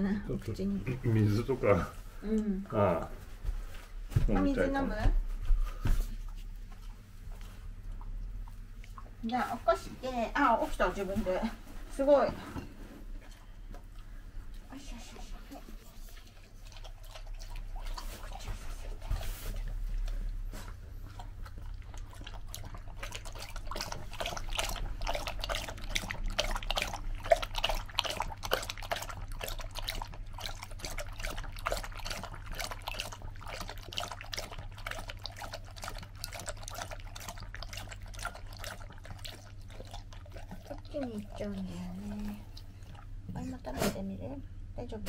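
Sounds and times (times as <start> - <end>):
dog lapping water: 13.2 - 43.7.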